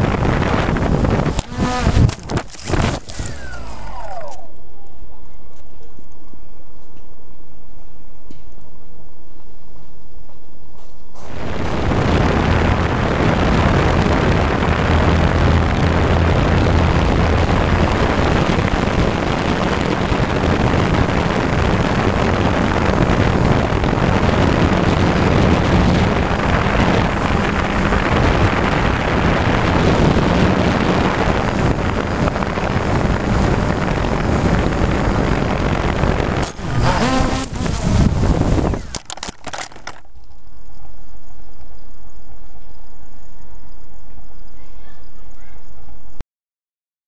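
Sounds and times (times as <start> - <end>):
wind rushing over microphone: 0.0 - 6.8, 10.6 - 44.6
drone motors whirring: 1.3 - 5.1, 11.2 - 40.0.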